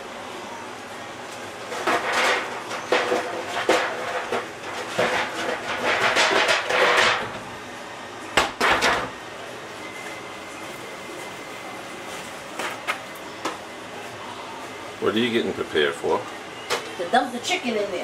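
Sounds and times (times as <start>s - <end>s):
pots and pans clattering: 1.7s - 7.4s.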